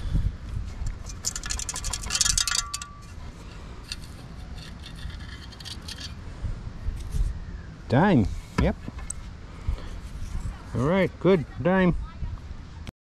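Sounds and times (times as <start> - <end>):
metal scoop rattling sand: 0.8 - 6.2
metal ringing: 1.0 - 6.2.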